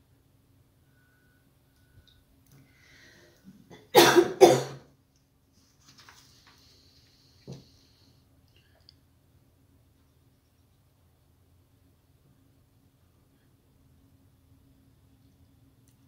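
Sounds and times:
person coughing: 0:03.7 - 0:04.9.

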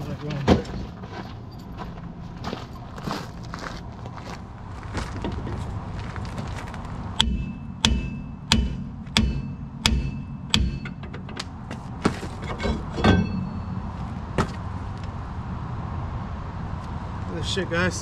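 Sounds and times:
hammer ringing on metal rotor: 0:07.2 - 0:11.1, 0:12.6 - 0:14.0
metal knocks and clanks: 0:07.2 - 0:14.8.

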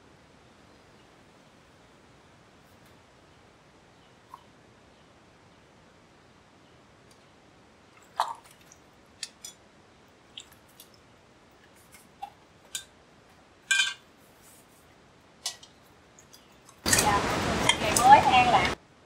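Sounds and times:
ringing metal clatter: 0:13.7 - 0:14.0
sticks clinking into steel bowl: 0:13.7 - 0:14.0.

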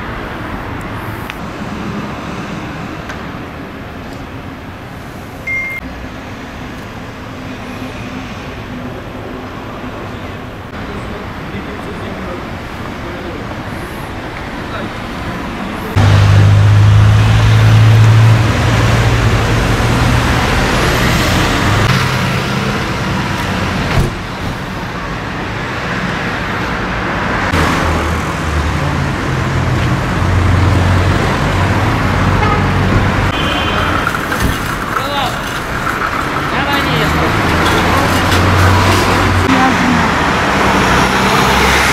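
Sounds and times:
road noise: 0:00.0 - 0:41.9
vehicle engine humming: 0:00.0 - 0:41.9.

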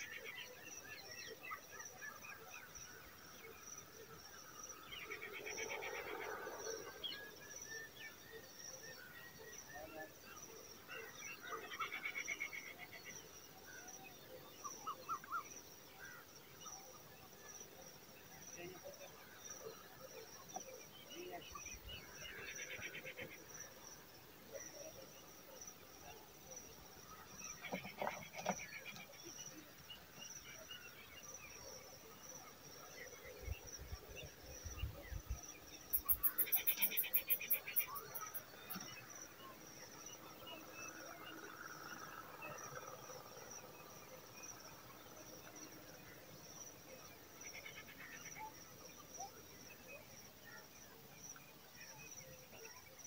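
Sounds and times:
faint chirps: 0:00.0 - 0:53.0
pulsing high insect trill: 0:35.9 - 0:38.5.

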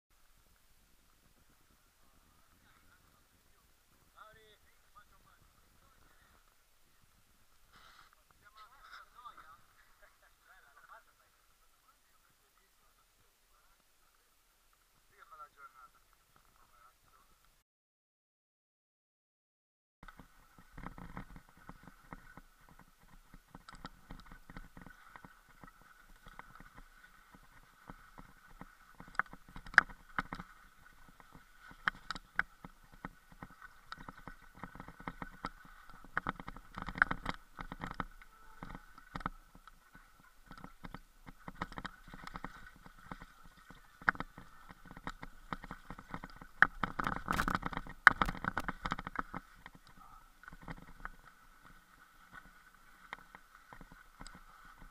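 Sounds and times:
mountain bike rattling and knocking: 0:31.1 - 0:38.1.

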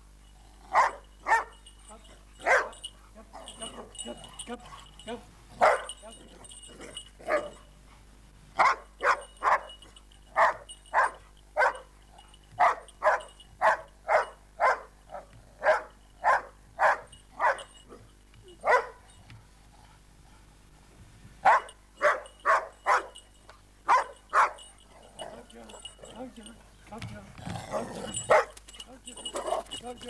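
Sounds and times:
dog barking sharply: 0:08.6 - 0:09.7, 0:18.6 - 0:19.0, 0:21.4 - 0:23.1, 0:23.9 - 0:24.6.

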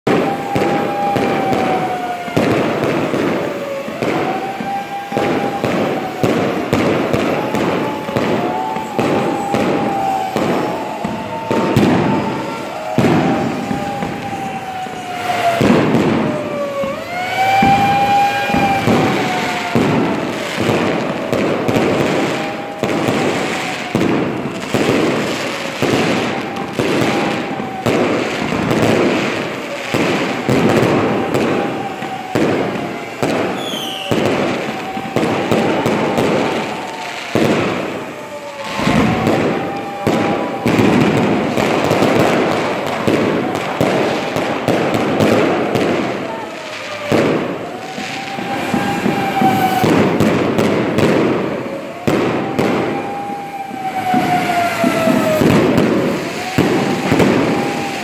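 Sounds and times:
fireworks crackling and bangs: 0:00.0 - 0:58.0
whistling fireworks: 0:00.0 - 0:58.0.

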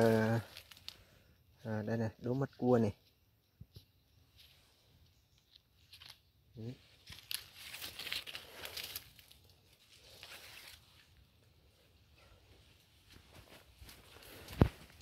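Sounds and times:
dry leaves crackling underfoot: 0:00.0 - 0:01.1, 0:06.8 - 0:11.3, 0:13.1 - 0:15.0
branches and leaves rustling: 0:00.0 - 0:01.8, 0:03.7 - 0:15.0.

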